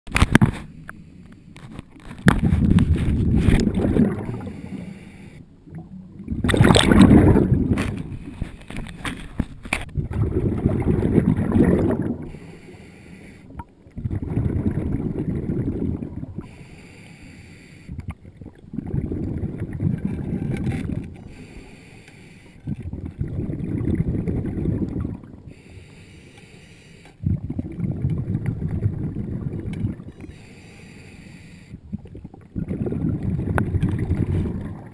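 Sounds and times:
underwater exhaled bubbles rushing: 2.3s - 5.0s, 5.6s - 8.9s, 9.9s - 12.5s, 13.5s - 16.5s, 17.9s - 21.4s, 22.6s - 25.6s, 27.2s - 30.3s, 31.8s - 34.9s
regulator inhalation hiss: 12.3s - 13.5s, 16.5s - 17.9s, 21.3s - 22.6s, 25.5s - 27.2s, 30.2s - 31.8s.

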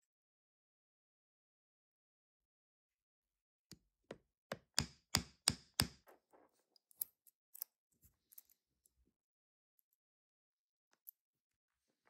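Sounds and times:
wooden mallet knocking metal clasp: 4.1s - 6.0s.

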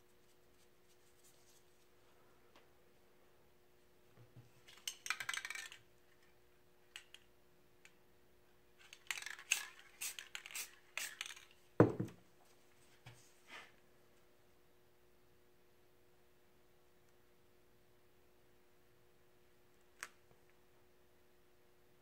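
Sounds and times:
spray can and tools clinking: 8.9s - 11.6s
loud clunk of object set down: 11.8s - 12.2s.

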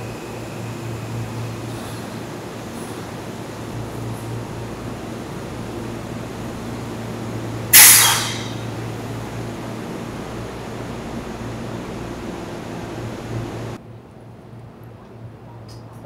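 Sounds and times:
electric train humming: 0.0s - 13.8s
compressed air hiss: 7.7s - 8.8s.

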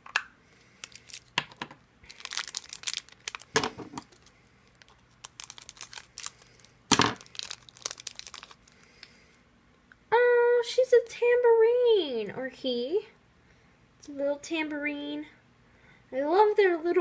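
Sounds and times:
plastic wrapper ripping: 0.8s - 9.1s
plastic wrapper crinkling: 0.8s - 9.2s.

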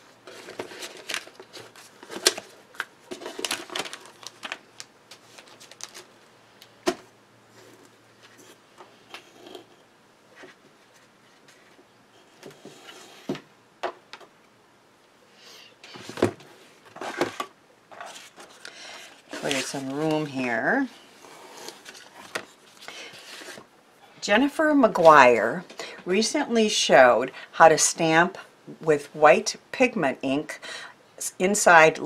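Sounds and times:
cardboard box rustling: 3.1s - 4.6s, 19.2s - 20.4s.

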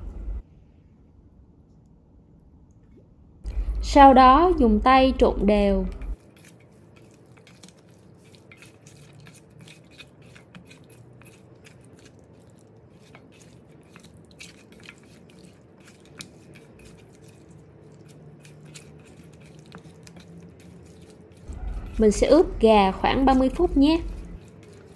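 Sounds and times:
meat clicking against metal bowl: 5.9s - 24.9s
wet squishing of meat: 6.0s - 24.9s.

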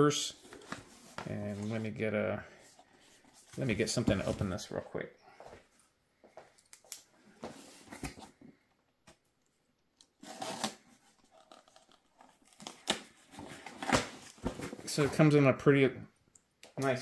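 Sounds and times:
tape tearing: 10.1s - 14.4s.

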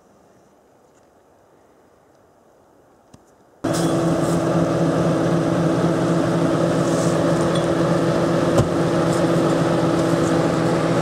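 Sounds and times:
truck engine idling: 3.6s - 11.0s.

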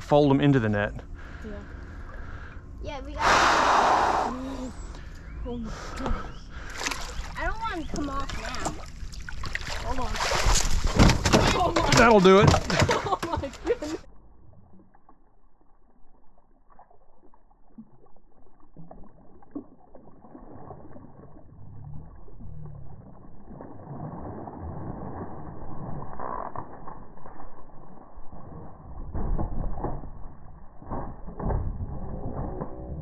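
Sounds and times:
fish thrashing in water: 6.6s - 13.8s
net knocks and creaks: 10.4s - 12.9s.

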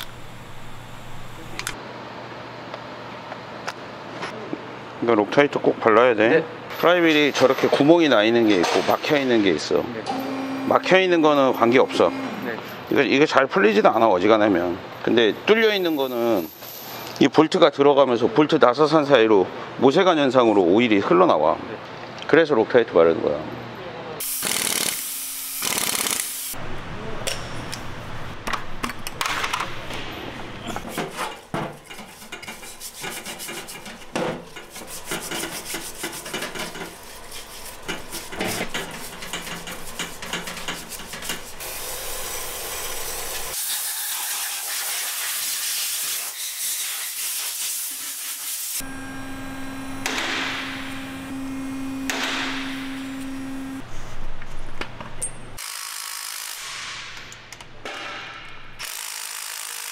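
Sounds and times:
steady low hum: 0.0s - 1.8s, 48.8s - 55.1s
impact wrench running: 24.2s - 26.6s, 48.8s - 53.8s, 55.6s - 57.0s, 58.8s - 59.9s
parts washer hiss: 31.0s - 48.8s.

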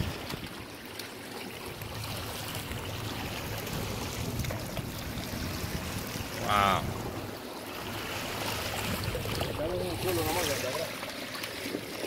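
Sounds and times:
water sloshing against boat hull: 0.0s - 12.0s.

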